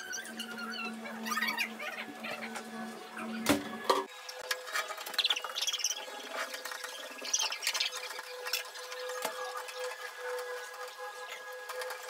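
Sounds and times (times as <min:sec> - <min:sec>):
glass screen squeaking under wiping: 0:00.0 - 0:03.4.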